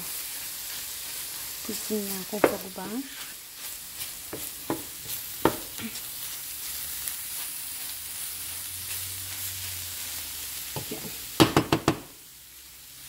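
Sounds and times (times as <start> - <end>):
carrots sizzling in a pan: 0.0 - 13.0
wooden spoon scraping a pan: 1.2 - 10.1, 10.7 - 11.3
spoon knocking on pan: 2.4 - 2.6, 4.3 - 5.7, 10.8 - 12.1.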